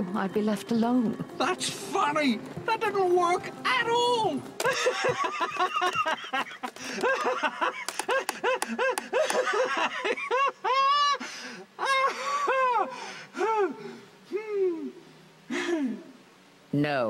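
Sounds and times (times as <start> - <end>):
cartoon character laughing: 4.6 - 11.2.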